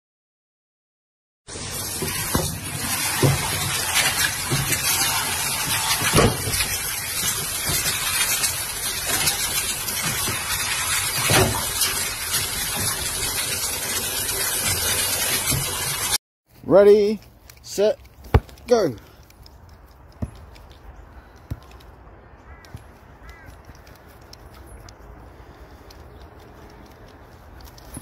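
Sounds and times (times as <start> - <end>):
running water gushing: 1.5 - 16.2.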